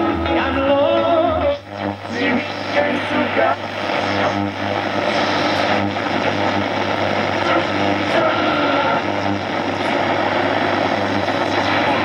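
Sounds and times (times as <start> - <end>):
radio static and hiss: 0.0 - 12.0
steady low hum: 0.0 - 12.0.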